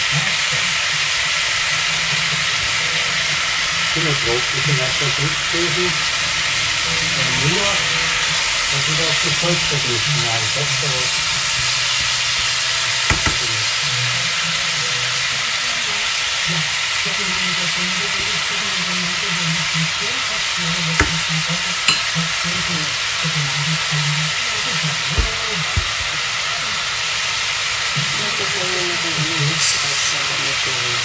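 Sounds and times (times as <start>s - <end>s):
food sizzling in a frying pan: 0.0s - 31.0s
sharp knocks: 13.1s - 13.6s, 21.0s - 21.3s, 25.2s - 26.1s.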